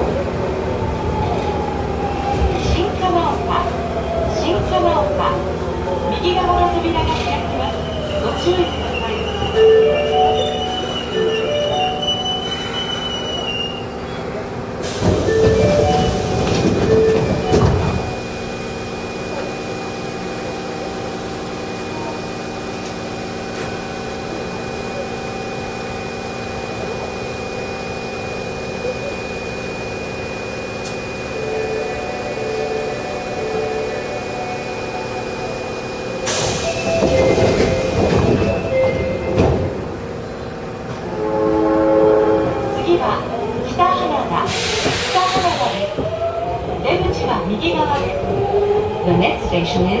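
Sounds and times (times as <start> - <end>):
train equipment hum: 0.0 - 50.0
train doors sliding: 6.5 - 18.5, 30.8 - 41.2, 44.4 - 46.3.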